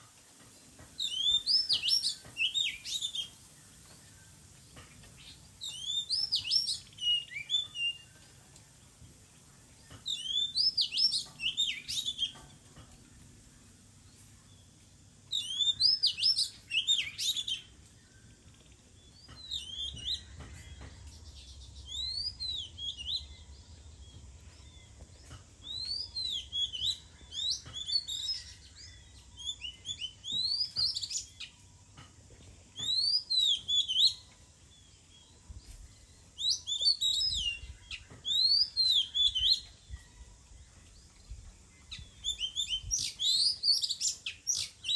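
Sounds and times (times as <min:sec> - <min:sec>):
magpie-robin singing whistled notes: 0:01.0 - 0:03.4, 0:05.2 - 0:08.3, 0:09.9 - 0:12.4, 0:15.3 - 0:18.3, 0:19.0 - 0:25.0, 0:25.6 - 0:31.5, 0:32.8 - 0:35.4, 0:36.0 - 0:40.2, 0:41.2 - 0:44.9.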